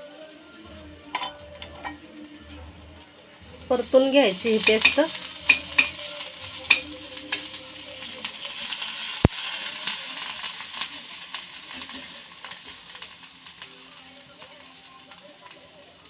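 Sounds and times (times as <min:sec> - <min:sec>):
paste sizzling in oil: 0:03.3 - 0:16.0.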